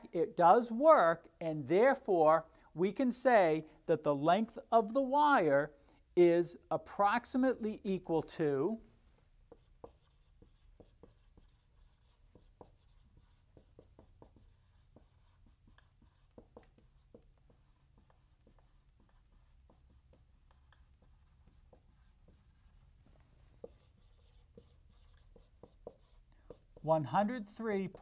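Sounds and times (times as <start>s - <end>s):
marker squeaking on whiteboard: 9.5s - 22.9s, 23.6s - 26.9s.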